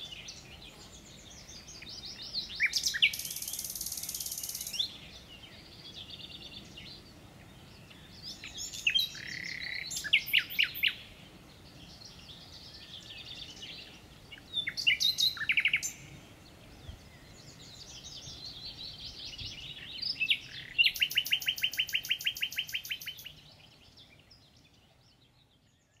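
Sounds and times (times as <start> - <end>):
songbirds singing: 0.0 - 26.0.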